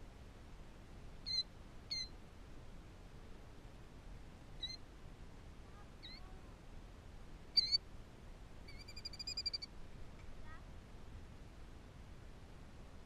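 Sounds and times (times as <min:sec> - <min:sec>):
bird trill: 0:01.2 - 0:02.1, 0:04.6 - 0:04.8, 0:06.0 - 0:06.3, 0:07.6 - 0:07.8, 0:08.7 - 0:09.7.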